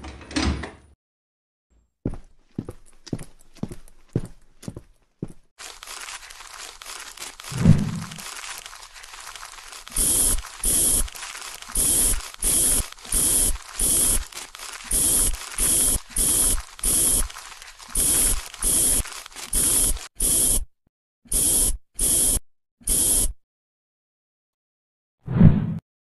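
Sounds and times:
spray bottle squirting: 5.6s - 20.6s, 21.3s - 23.3s.

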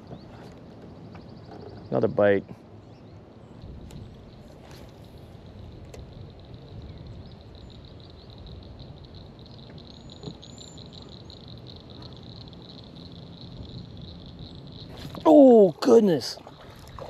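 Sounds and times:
low wind rumble: 0.0s - 17.0s
frogs calling: 5.4s - 17.0s.

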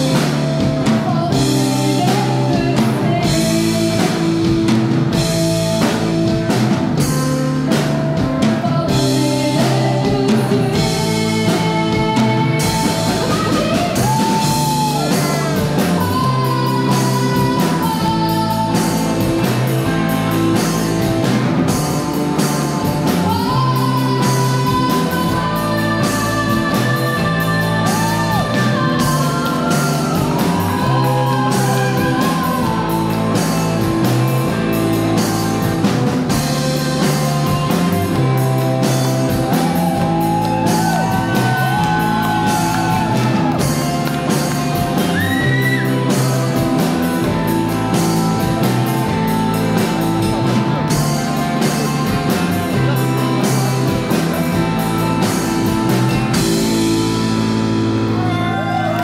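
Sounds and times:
woman singing: 0.0s - 4.6s, 8.2s - 20.0s, 23.0s - 35.4s, 37.0s - 46.6s
bass guitar: 0.0s - 59.0s
drums: 0.0s - 59.0s
electric guitars: 0.0s - 59.0s.

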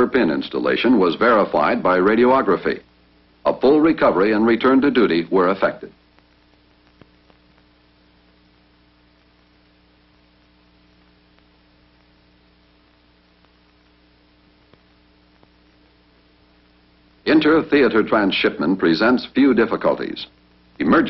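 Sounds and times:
faint electrical hum with hiss: 0.0s - 21.0s
faint clicks: 6.1s - 7.7s.

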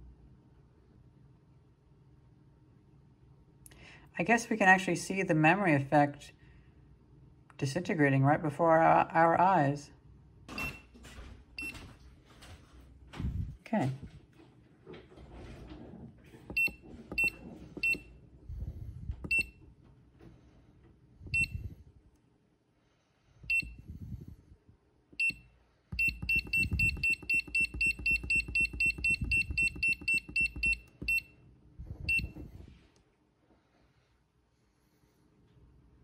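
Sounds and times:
battery charger beeping: 16.5s - 18.1s, 19.2s - 19.6s, 25.2s - 31.3s.

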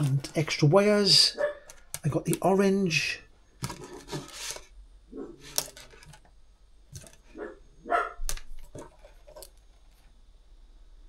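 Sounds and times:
dog barking: 1.3s - 1.7s, 7.4s - 8.2s.

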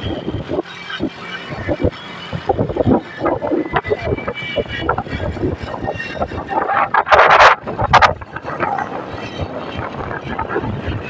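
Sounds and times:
vehicle driving: 0.0s - 11.0s
wind rushing over microphone: 0.0s - 11.0s.

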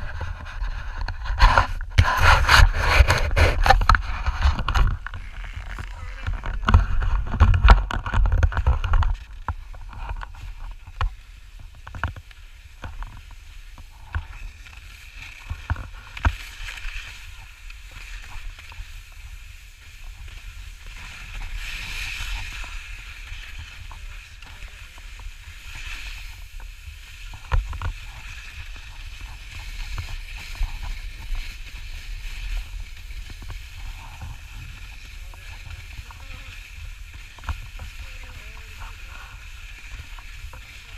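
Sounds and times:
skis hissing over snow: 0.0s - 7.0s, 9.2s - 40.9s
wind rumble on microphone: 0.0s - 40.9s.

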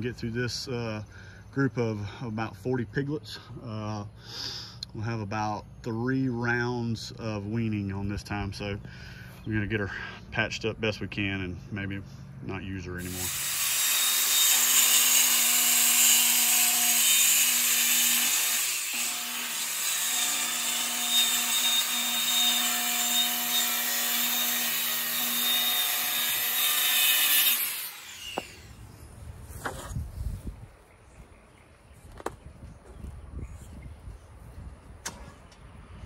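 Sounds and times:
power saw cutting plywood: 13.0s - 28.8s.

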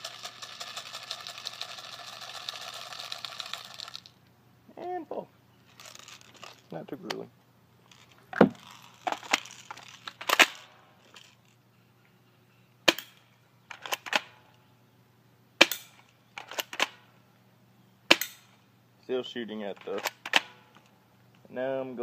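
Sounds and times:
airsoft gun snapping: 10.1s - 10.7s, 15.6s - 17.0s, 18.1s - 18.5s, 19.8s - 20.6s.

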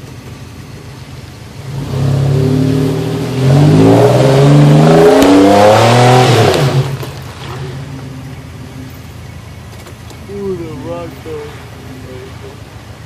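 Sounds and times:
off-road engine revving hard: 1.6s - 8.8s.

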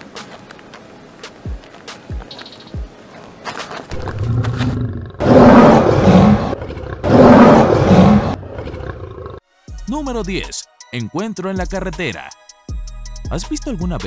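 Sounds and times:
lion growling and roaring: 3.9s - 9.4s.

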